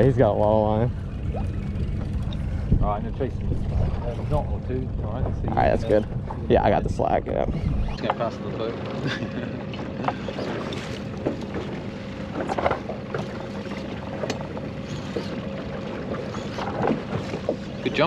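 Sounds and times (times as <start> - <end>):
outboard motor humming: 0.0 - 18.0
wind and water rushing: 0.0 - 18.0.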